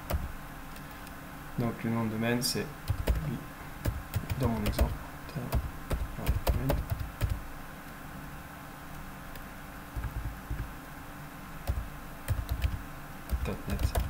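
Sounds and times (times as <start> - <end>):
computer keyboard keystrokes: 2.9 - 7.4, 10.0 - 10.7, 11.7 - 14.0.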